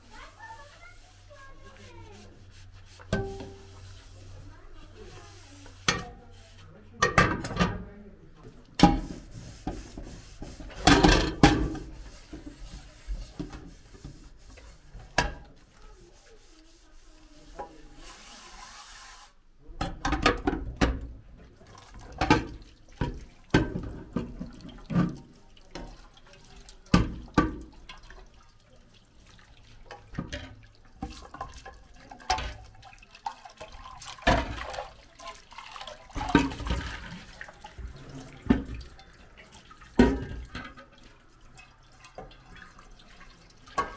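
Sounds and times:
tap water running: 0.0 - 6.6, 8.5 - 19.4, 20.3 - 43.9
metal cookware clattering in sink: 3.0 - 3.9, 5.7 - 6.3, 7.0 - 7.9, 8.8 - 13.7, 19.8 - 28.3, 29.8 - 43.9.

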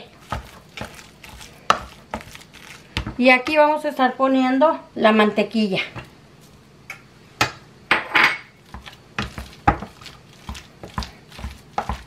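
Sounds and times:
masher scraping pan: 0.0 - 3.2, 8.6 - 12.0.

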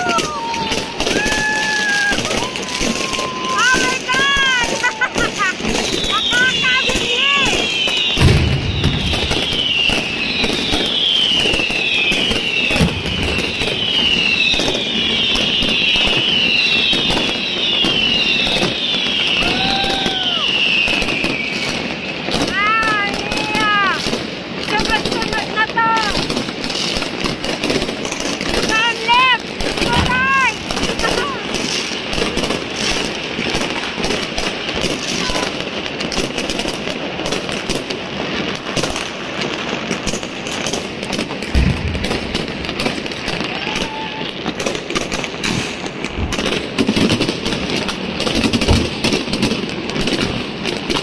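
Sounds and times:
descending firework whistles: 0.0 - 24.0, 27.8 - 36.8, 40.0 - 50.1
fireworks crackling and banging: 0.0 - 51.0
deep thump: 8.2 - 9.8, 41.6 - 42.4.

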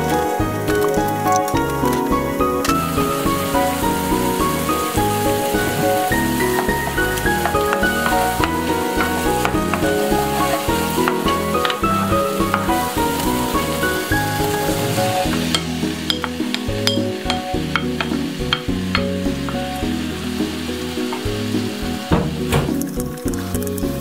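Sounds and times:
background music with bass line: 0.0 - 24.0
vegetables sizzling in a frying pan: 2.7 - 17.0.

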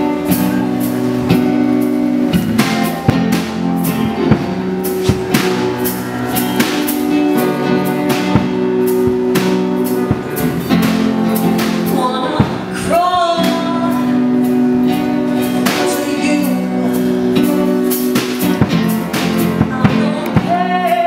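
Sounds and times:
acoustic guitar: 0.0 - 21.0
sustained keyboard chords: 0.0 - 21.0
drum hits: 2.4 - 12.8
woman singing: 11.6 - 17.0, 19.3 - 21.0.

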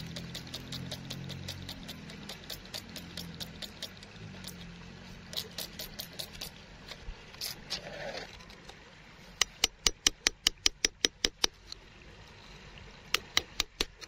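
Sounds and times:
fingers rubbing grit off pebble: 0.0 - 4.6, 5.2 - 6.6.

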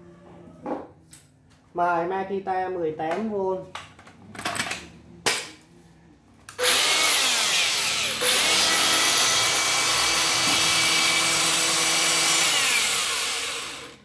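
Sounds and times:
angle grinder running: 6.5 - 14.0.

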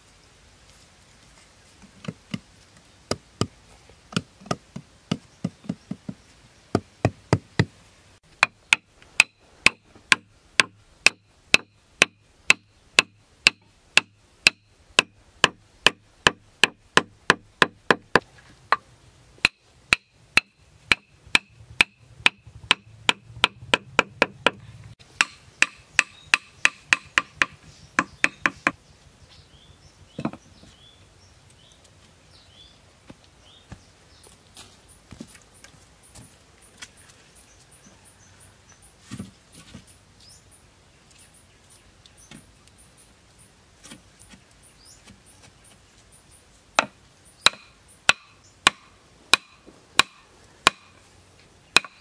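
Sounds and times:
wood knocking on bamboo poles: 1.8 - 28.8, 30.1 - 30.8, 46.8 - 51.0, 51.8 - 52.0.

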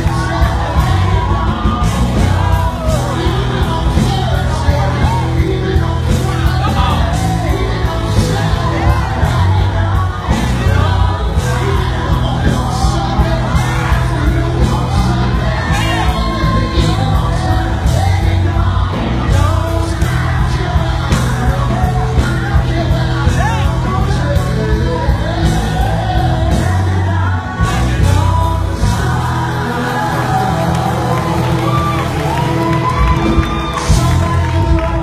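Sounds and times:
audience shouting and whooping: 0.0 - 19.0, 29.0 - 35.0
gospel group singing with band: 0.0 - 35.0.

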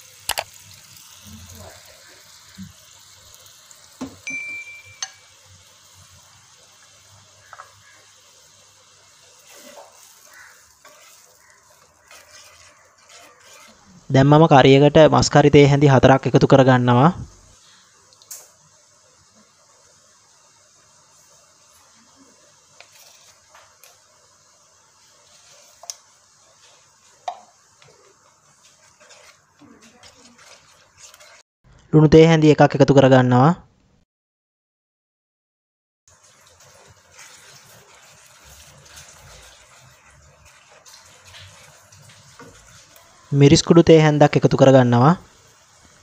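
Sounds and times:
brine simmering in a wok: 0.0 - 31.5, 36.1 - 46.0
short high beep: 4.3 - 5.2
wooden spatula scraping a wok: 6.8 - 14.4, 21.2 - 31.5, 36.1 - 43.4.

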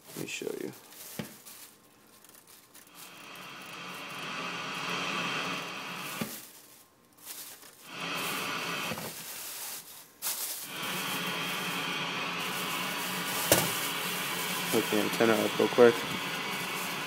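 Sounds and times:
radio static hiss: 2.9 - 6.4, 7.8 - 9.1, 10.6 - 17.0.

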